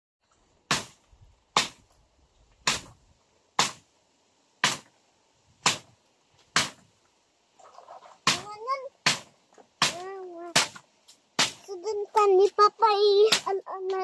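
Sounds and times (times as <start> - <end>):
chopping strikes on wood: 0.7 - 1.8, 2.6 - 3.0, 3.6 - 3.8, 4.6 - 4.9, 5.6 - 5.9, 6.5 - 6.9, 8.2 - 10.0, 10.6 - 10.8, 11.4 - 11.6.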